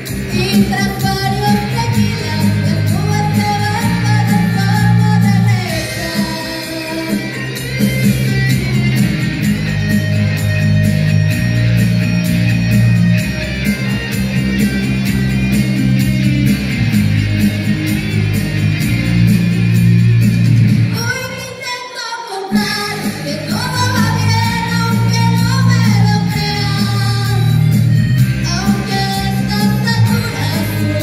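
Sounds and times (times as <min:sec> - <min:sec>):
music: 0:00.0 - 0:31.0
woman singing into a microphone: 0:00.2 - 0:07.6, 0:20.9 - 0:27.8, 0:28.4 - 0:31.0.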